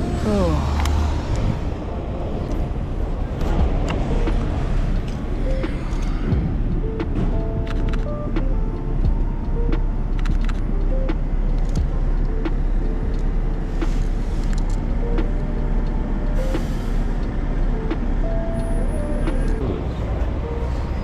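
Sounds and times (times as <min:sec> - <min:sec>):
traffic rumble: 0:00.0 - 0:21.0
scattered clicks: 0:03.4 - 0:19.6.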